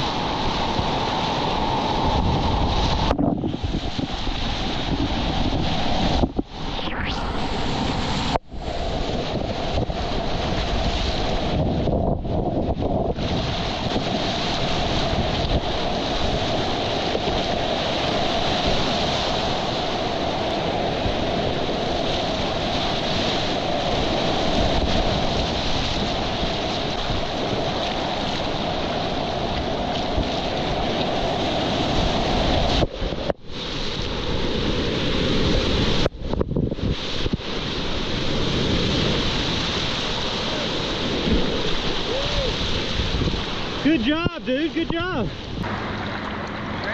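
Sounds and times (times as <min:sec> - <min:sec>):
wind buffeting the microphone: 0:00.0 - 0:46.9
whitewater rapids rushing: 0:13.2 - 0:33.2, 0:37.6 - 0:46.9.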